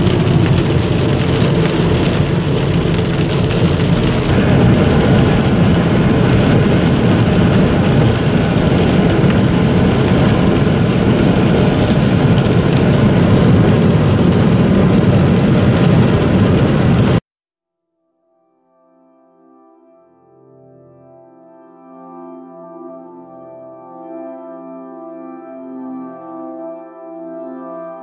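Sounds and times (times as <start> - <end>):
steady rain: 0.0 - 17.2
tyre noise on wet road: 0.0 - 17.2.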